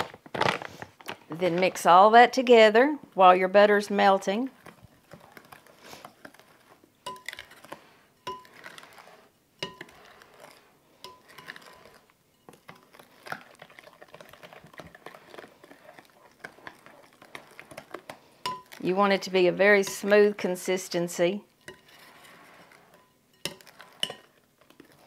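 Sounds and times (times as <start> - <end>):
spoon scraping batter: 3.8 - 25.0
spoon clinking on glass bowl: 7.0 - 7.4, 18.4 - 18.8, 23.0 - 24.3.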